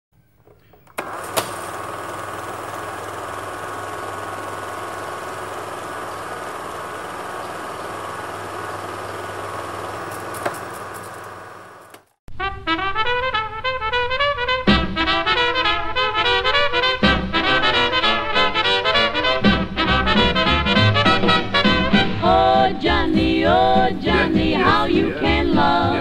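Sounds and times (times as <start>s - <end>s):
mechanical running hum: 0.4s - 12.2s
brass music: 12.3s - 22.3s.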